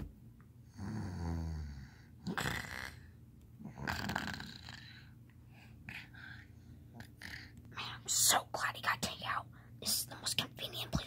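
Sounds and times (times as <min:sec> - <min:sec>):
person imitating snoring: 0:00.7 - 0:05.1.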